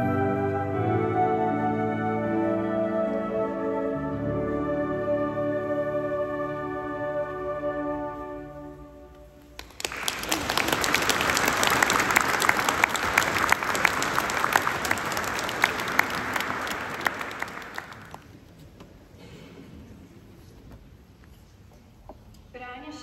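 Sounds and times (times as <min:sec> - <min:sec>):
held musical chord: 0:00.0 - 0:09.1
audience applauding: 0:09.6 - 0:18.4.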